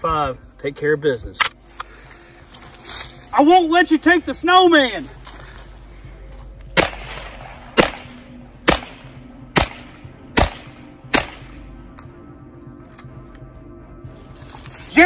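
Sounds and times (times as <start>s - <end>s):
pistol shots with echo: 6.7s - 11.7s.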